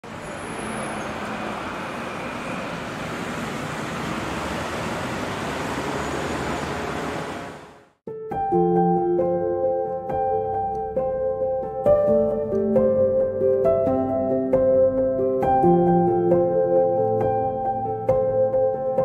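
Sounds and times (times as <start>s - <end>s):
city traffic noise: 0.0s - 8.0s
music: 8.1s - 19.0s.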